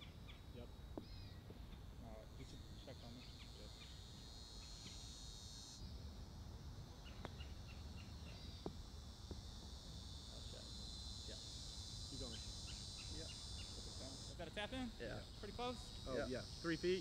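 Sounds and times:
sharp chirps: 0.0 - 6.1
insect chorus: 0.0 - 17.0.

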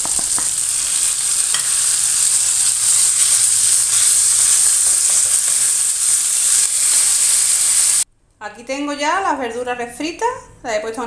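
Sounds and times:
vegetables sizzling in oil: 0.0 - 8.1.

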